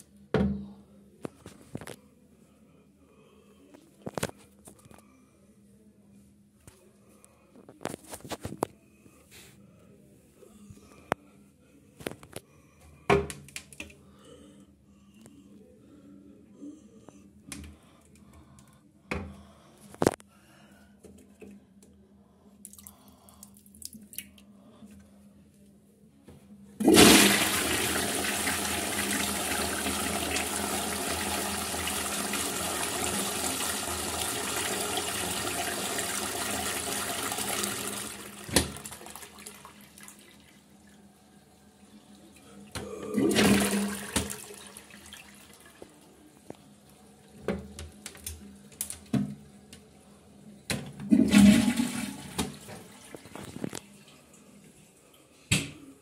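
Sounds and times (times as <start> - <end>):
toilet flushing: 26.8 - 40.6, 42.8 - 45.8, 51.0 - 53.5.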